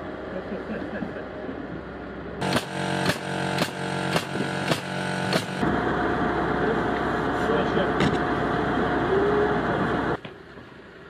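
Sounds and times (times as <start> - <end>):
steady mechanical hum: 0.0 - 11.0
nail gun shots: 2.4 - 5.6.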